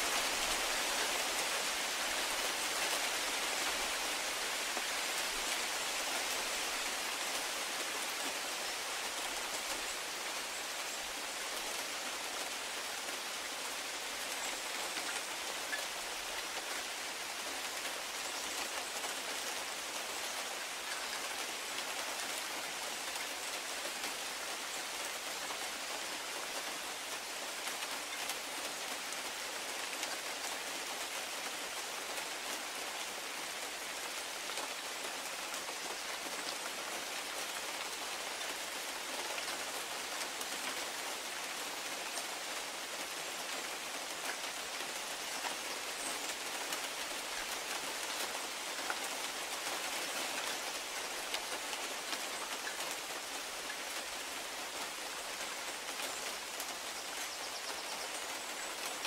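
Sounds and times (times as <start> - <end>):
rain falling on branches and grass: 0.0 - 59.0.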